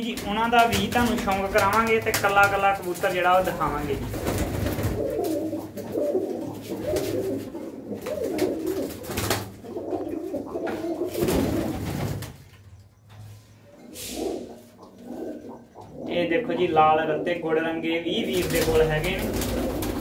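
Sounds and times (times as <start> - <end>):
pigeons cooing: 3.1 - 12.1, 13.6 - 20.0.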